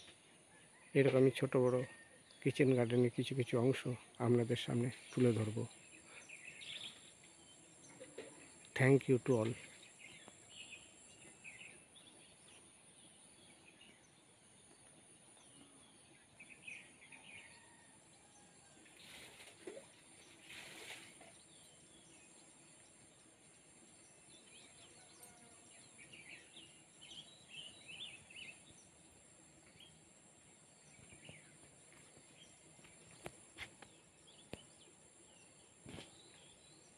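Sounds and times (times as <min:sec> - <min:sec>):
steady high-pitched hiss: 0:00.0 - 0:17.1, 0:17.9 - 0:36.9
faint bird chirps: 0:00.0 - 0:22.9, 0:23.9 - 0:29.0.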